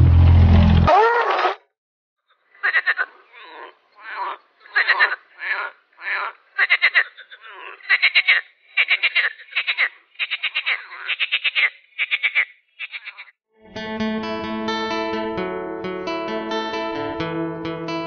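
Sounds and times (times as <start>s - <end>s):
frog croaking: 2.3s - 13.3s.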